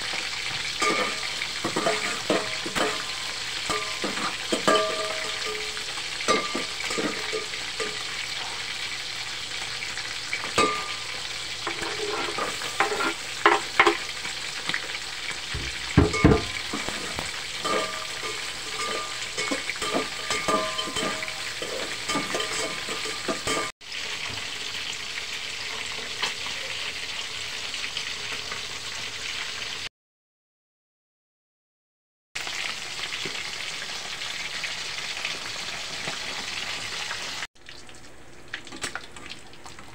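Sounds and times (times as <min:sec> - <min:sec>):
fish sizzling in hot oil: 0:00.0 - 0:29.9, 0:32.4 - 0:39.9
metal spoon scraping pot: 0:00.8 - 0:08.1, 0:11.6 - 0:14.1, 0:16.1 - 0:23.7.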